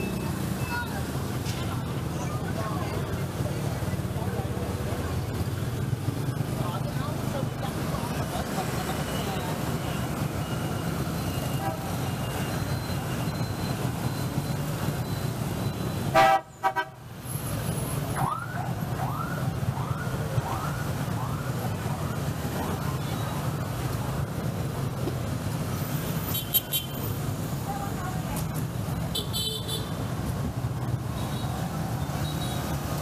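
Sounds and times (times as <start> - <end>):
city street traffic: 0.0 - 33.0
car horn honk: 16.1 - 17.0, 29.2 - 30.0.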